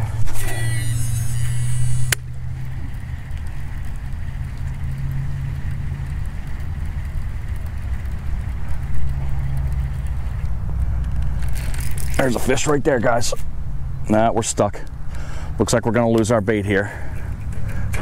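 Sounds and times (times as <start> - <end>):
fishing reel being cranked: 0.0 - 13.4
steady low rumble: 0.0 - 18.0
sharp click: 1.8 - 2.3.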